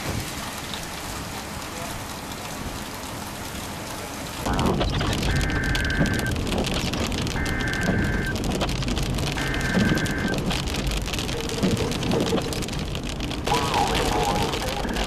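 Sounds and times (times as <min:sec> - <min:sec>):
low road rumble: 0:00.0 - 0:15.0
rain and hail on vehicle: 0:00.0 - 0:15.0
electronic tone beeping: 0:04.5 - 0:06.4, 0:07.3 - 0:08.4, 0:09.4 - 0:10.4.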